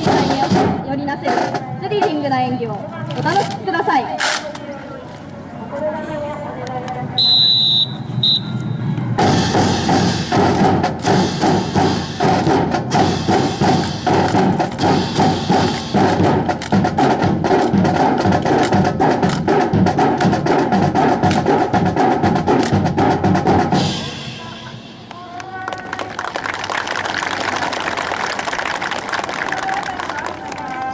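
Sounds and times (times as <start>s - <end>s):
rifles clacking and slapping: 3.0s - 4.7s, 13.7s - 14.9s, 15.5s - 16.9s, 17.6s - 19.5s.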